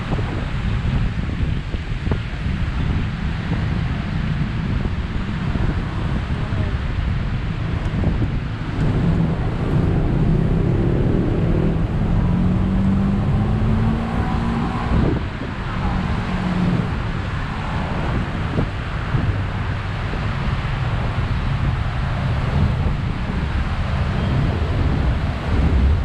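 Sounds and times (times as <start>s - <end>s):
road traffic rushing: 0.0s - 26.0s
engine note rising: 7.4s - 26.0s.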